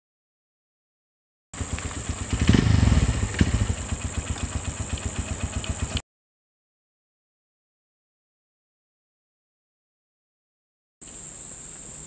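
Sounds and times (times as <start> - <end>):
small motorcycle engine putter: 1.6 - 6.0.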